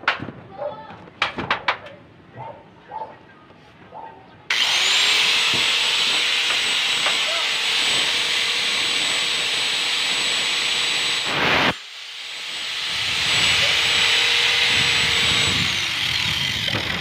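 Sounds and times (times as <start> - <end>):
angle grinder whining: 4.5 - 17.0.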